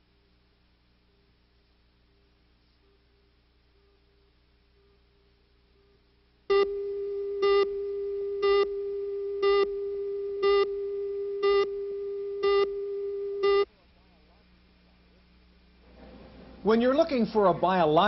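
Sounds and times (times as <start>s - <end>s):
buzzy countdown beeps: 6.5s - 8.8s, 9.4s - 9.8s, 10.4s - 13.7s
steady single-pitch tone: 6.5s - 13.7s.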